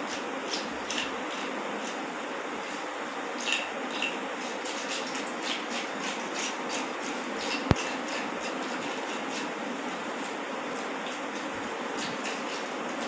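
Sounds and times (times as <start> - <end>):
knife scraping fish scales: 0.1 - 2.0, 3.4 - 9.6, 11.4 - 13.0.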